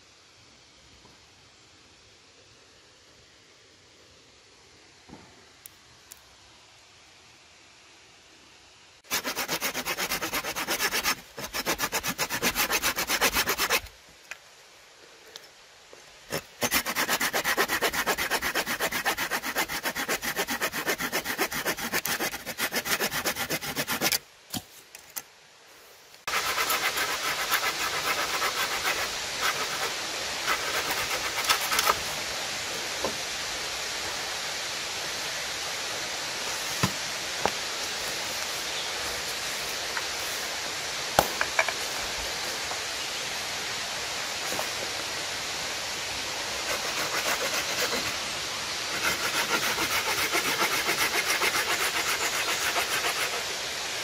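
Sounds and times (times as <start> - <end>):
hand saw cutting wood: 9.1 - 13.9, 16.3 - 24.2, 26.3 - 32.0, 46.6 - 48.2, 48.9 - 53.5.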